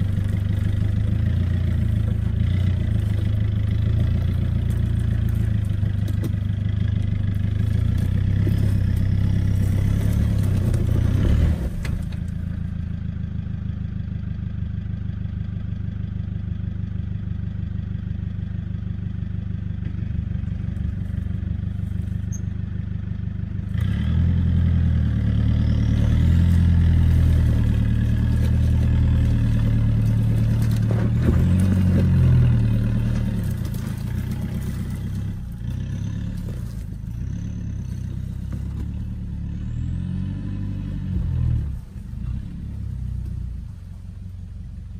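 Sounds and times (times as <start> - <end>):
engine revving under load: 7.0 - 12.4, 23.7 - 43.8.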